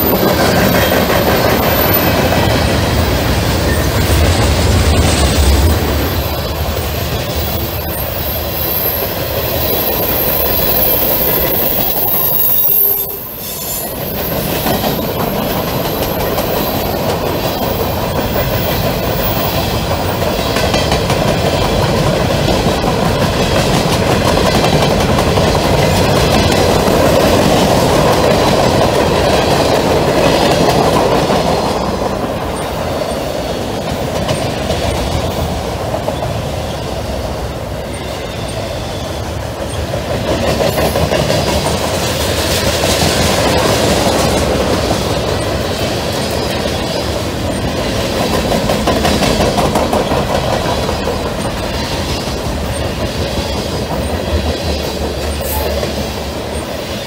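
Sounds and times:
freight train wheels rumbling on rails: 0:00.0 - 0:57.0.

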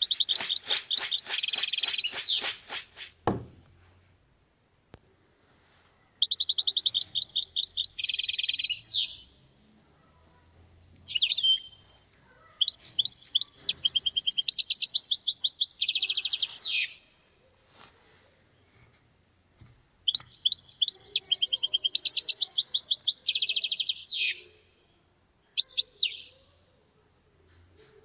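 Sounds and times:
finch singing: 0:00.0 - 0:02.6, 0:06.2 - 0:09.4, 0:11.0 - 0:12.0, 0:12.6 - 0:17.0, 0:20.1 - 0:24.4, 0:25.6 - 0:26.4.

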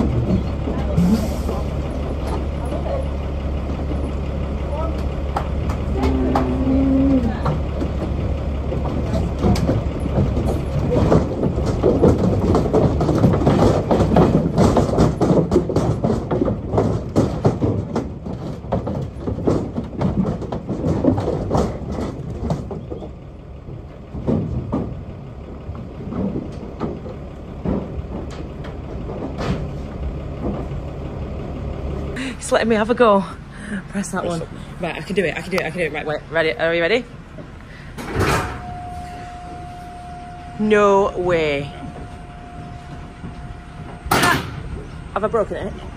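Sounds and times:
cattle knocking in trailer: 0:00.0 - 0:32.1
diesel engine idling: 0:00.0 - 0:45.9.

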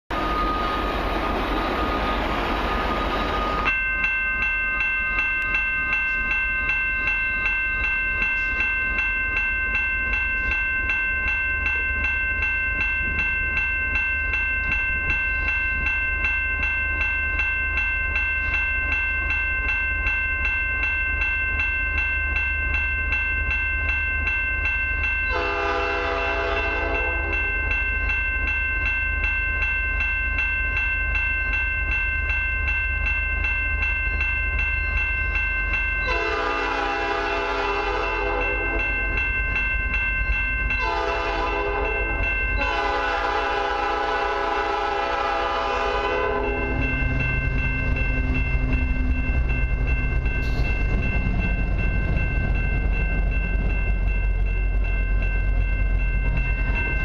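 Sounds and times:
level crossing warning bell: 0:00.1 - 0:57.0
train air horn blast: 0:25.3 - 0:27.1, 0:36.1 - 0:38.4, 0:40.8 - 0:41.9, 0:42.6 - 0:46.6
low rumble: 0:46.4 - 0:57.0.

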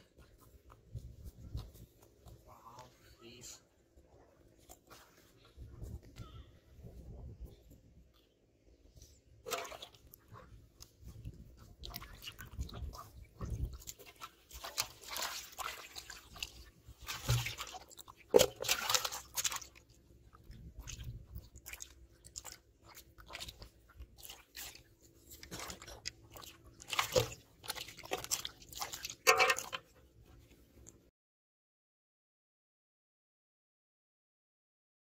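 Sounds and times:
wet slaps and splashes: 0:09.4 - 0:10.2, 0:11.8 - 0:19.9, 0:20.7 - 0:29.8
fish flapping in metal basin: 0:11.9 - 0:19.8, 0:25.4 - 0:29.9.

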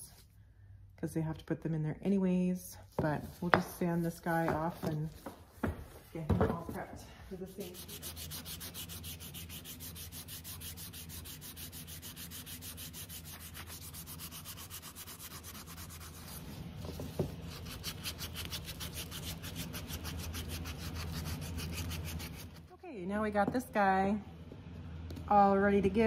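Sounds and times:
sandpaper rubbing on wood: 0:07.4 - 0:16.6, 0:17.4 - 0:22.6.

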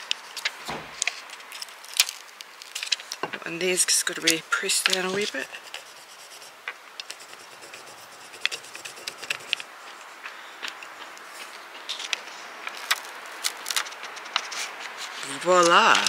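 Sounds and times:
wooden stick scratching transfer: 0:03.6 - 0:10.1
backing sheet peeling: 0:11.8 - 0:16.0.

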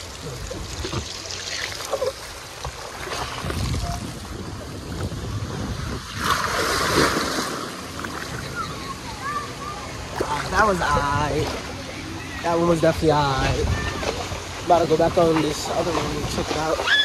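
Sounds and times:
water rushing down slide: 0:00.0 - 0:17.0
loud splash into pool: 0:06.1 - 0:08.1.

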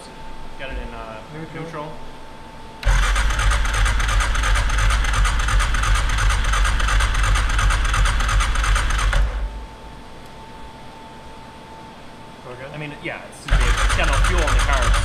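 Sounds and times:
engine cranking on electric starter: 0:02.8 - 0:09.5, 0:13.5 - 0:15.0.

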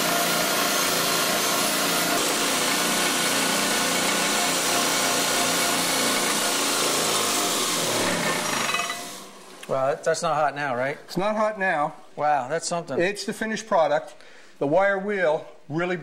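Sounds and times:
bench grinder running: 0:00.0 - 0:09.4.

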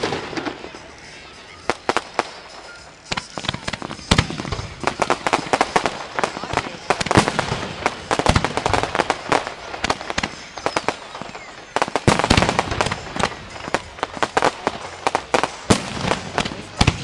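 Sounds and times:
fireworks bangs and pops: 0:00.0 - 0:17.0.

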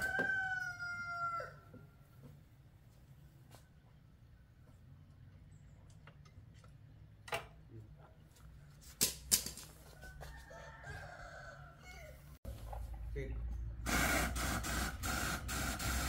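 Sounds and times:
rooster crowing: 0:00.0 - 0:01.8, 0:09.9 - 0:12.4.

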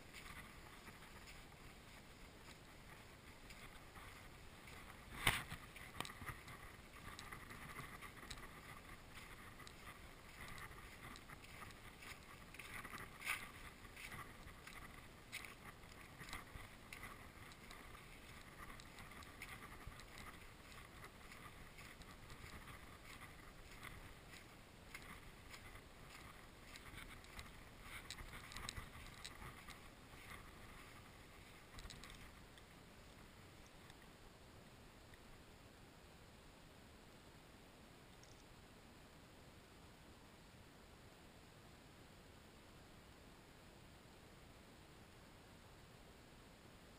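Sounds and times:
footsteps crunching on shore: 0:00.0 - 0:33.8.

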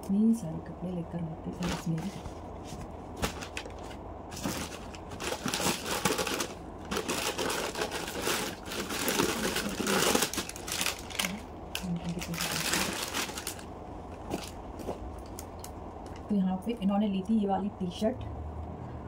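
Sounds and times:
plastic bag rustling: 0:01.6 - 0:15.5.

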